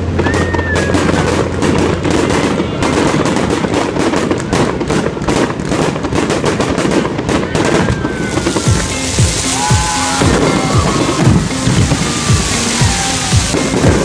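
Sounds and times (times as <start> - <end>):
fireworks crackling and banging: 0.0 - 14.0
firework whistle gliding down: 0.1 - 1.3, 7.4 - 14.0.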